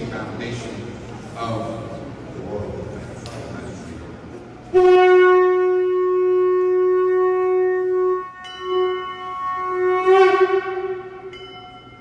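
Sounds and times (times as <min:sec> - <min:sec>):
saxophone notes: 0:04.6 - 0:12.0.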